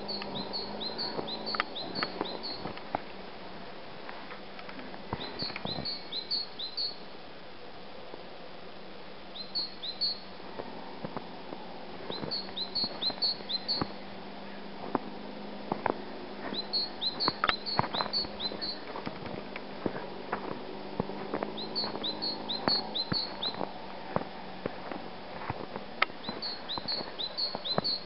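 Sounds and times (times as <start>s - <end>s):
songbird high rising notes: 0.0s - 2.7s, 9.3s - 10.3s, 12.0s - 14.6s, 16.1s - 18.9s, 21.5s - 23.6s, 26.2s - 28.0s
footsteps crunching in snow: 14.8s - 28.0s.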